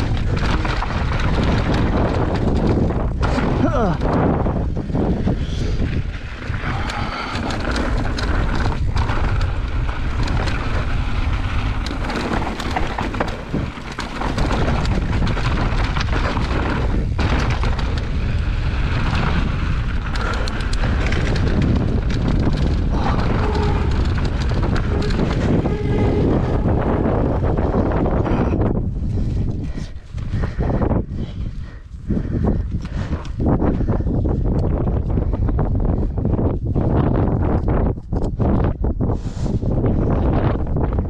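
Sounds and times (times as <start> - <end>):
constant low rumble: 0.0 - 41.0
mountain bike rattling: 0.0 - 41.0
wind buffeting microphone: 0.0 - 41.0
tyres clattering over rocks: 6.4 - 26.7.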